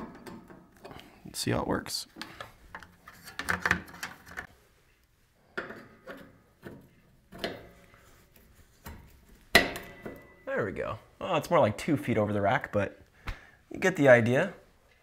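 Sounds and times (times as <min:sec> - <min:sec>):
antenna rubbing and clattering: 0:02.2 - 0:04.5.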